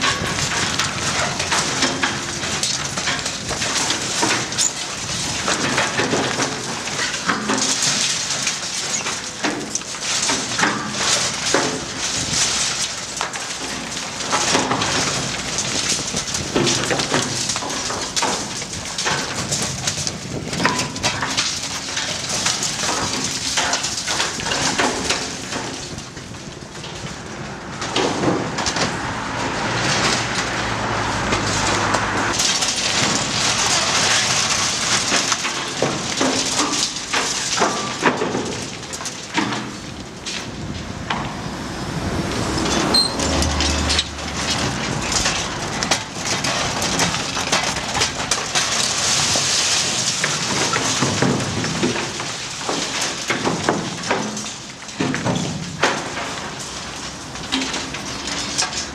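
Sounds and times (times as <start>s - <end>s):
concrete and rebar cracking: 0.0s - 58.9s
diesel engine humming: 26.6s - 34.0s, 39.7s - 47.5s.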